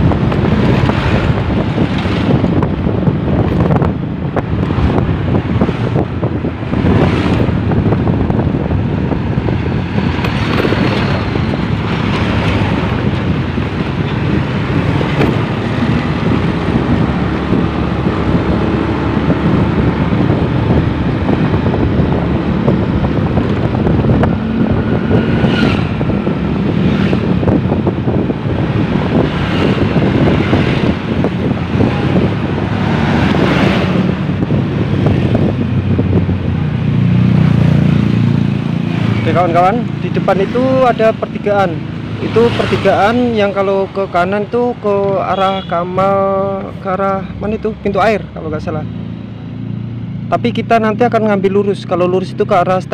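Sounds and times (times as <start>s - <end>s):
motorcycle engine: 0.0s - 43.8s
road noise: 0.0s - 52.9s
wind on microphone: 0.0s - 52.9s.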